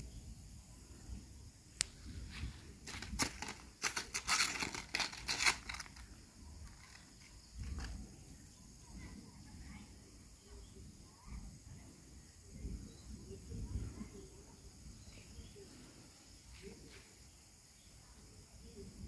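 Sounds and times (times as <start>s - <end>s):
high insect drone: 0.0s - 13.5s.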